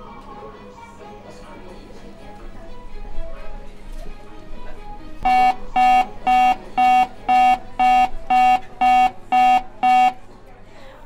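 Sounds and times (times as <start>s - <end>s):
security gate alarm beeping: 5.2s - 10.3s.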